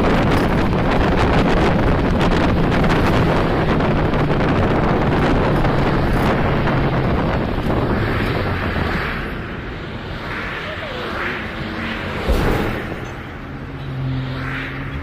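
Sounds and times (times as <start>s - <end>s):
car road noise: 0.0s - 15.0s
low engine hum: 0.0s - 15.0s
wind rushing over microphone: 0.0s - 15.0s.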